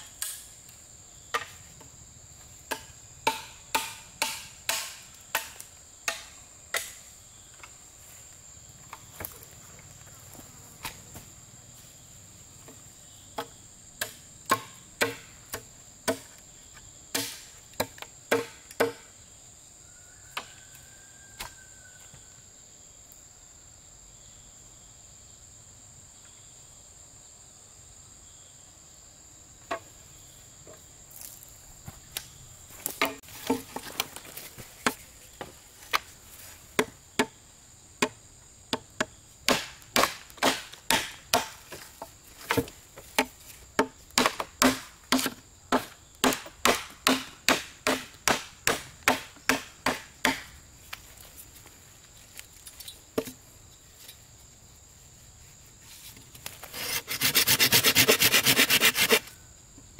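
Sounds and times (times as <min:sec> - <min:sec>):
insects chirring: 0:00.0 - 0:59.9
wood being chopped: 0:02.7 - 0:07.0, 0:13.4 - 0:16.3, 0:17.1 - 0:19.1, 0:32.8 - 0:36.1, 0:38.0 - 0:50.6
loud scraping: 0:56.7 - 0:59.3.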